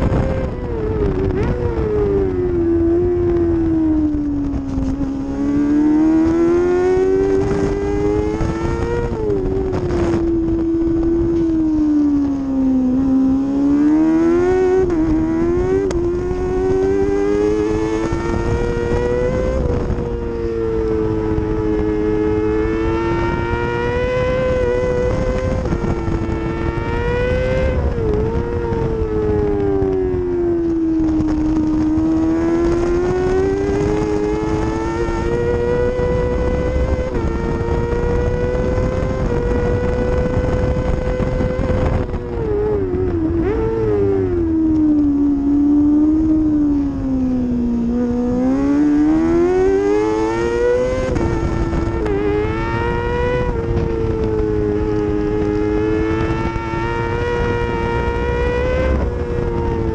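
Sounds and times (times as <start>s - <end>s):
motorcycle engine at speed: 0.0s - 59.9s.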